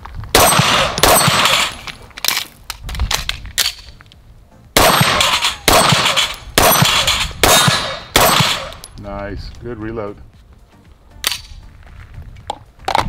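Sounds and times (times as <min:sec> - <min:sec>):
pistol shots: 0:00.3 - 0:01.9, 0:04.8 - 0:08.9.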